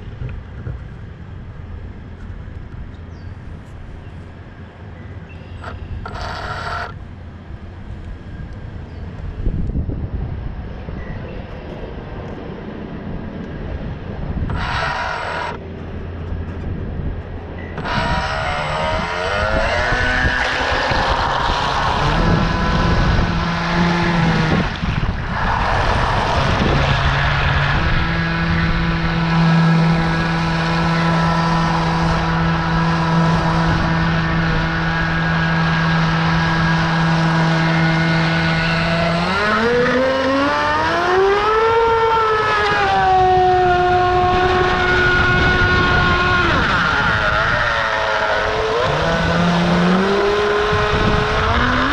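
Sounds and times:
model boat motor droning: 5.4s - 7.0s, 14.4s - 16.2s, 17.6s - 24.9s, 26.0s - 51.9s.

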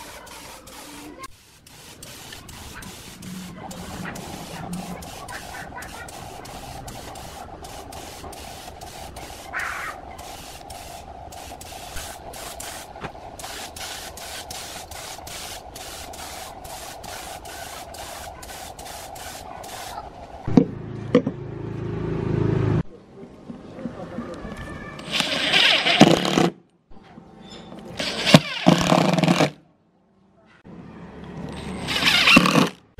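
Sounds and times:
spray gun hissing: 0.0s - 20.1s.

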